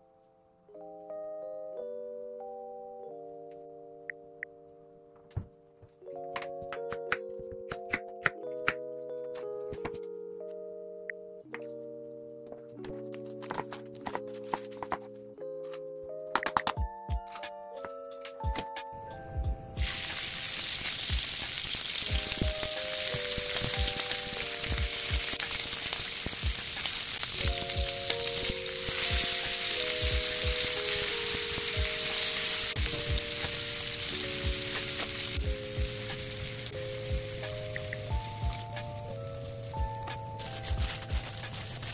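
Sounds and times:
meat sizzling in oil: 0:19.8 - 0:39.8.

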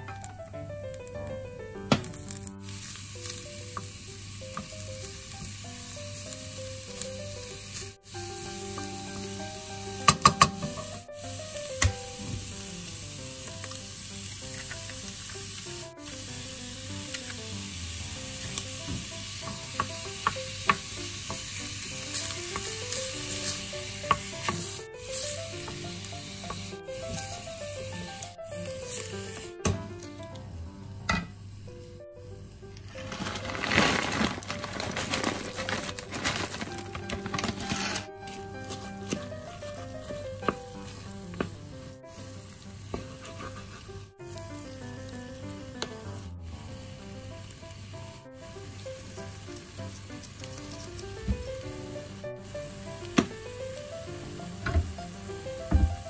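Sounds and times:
food sizzling in a saucepan: 0:02.1 - 0:29.6, 0:37.7 - 0:56.0
wooden spoon stirring and scraping: 0:33.0 - 0:41.5, 0:42.9 - 0:44.1.

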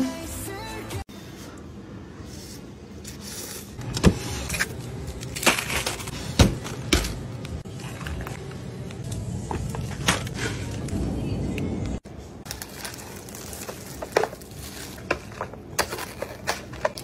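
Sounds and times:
freezer hum: 0:00.0 - 0:17.0.

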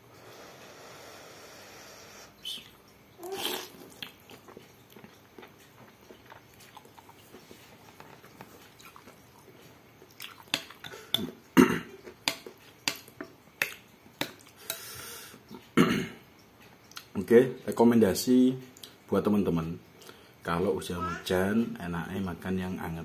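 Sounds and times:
quiet chewing: 0:02.5 - 0:15.8
slurping noodle soup: 0:03.2 - 0:04.6.

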